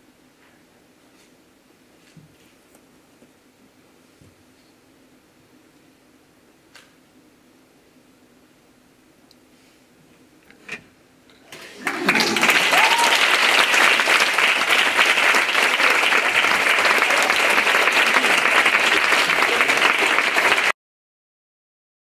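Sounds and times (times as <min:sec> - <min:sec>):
audience applauding: 0:11.5 - 0:20.8.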